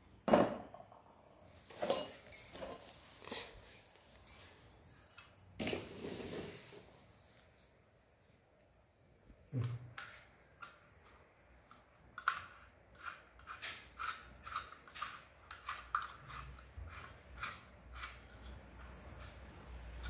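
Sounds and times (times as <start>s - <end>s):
small metallic clicks and scrapes: 9.9s - 20.0s.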